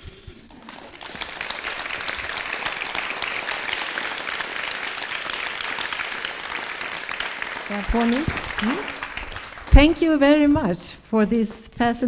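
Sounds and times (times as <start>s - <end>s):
audience applauding: 0.5s - 10.5s.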